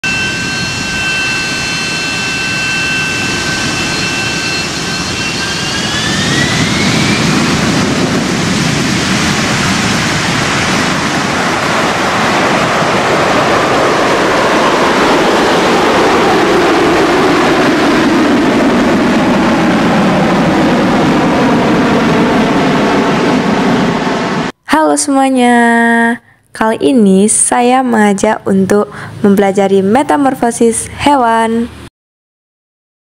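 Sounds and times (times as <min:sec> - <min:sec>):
tone sliding downward: 0:00.0 - 0:09.7
high whine rising in pitch: 0:00.0 - 0:24.6
loud rushing noise: 0:00.0 - 0:24.6.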